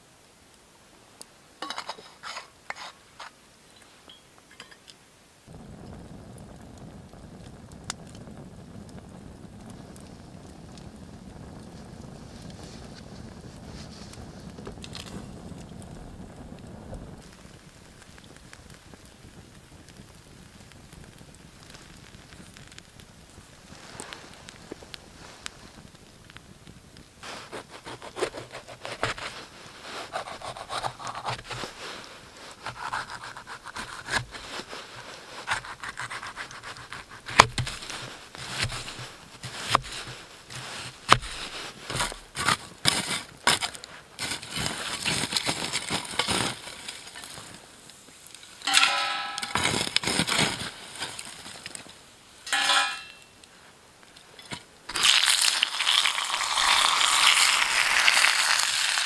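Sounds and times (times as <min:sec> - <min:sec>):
metal shovel scraping embers: 0:01.6 - 0:04.9, 0:27.2 - 0:53.5, 0:54.3 - 0:55.8
squeaky scrapes: 0:01.7 - 0:03.4
pepper sizzling in a pan: 0:27.2 - 0:53.6, 0:54.4 - 0:59.0.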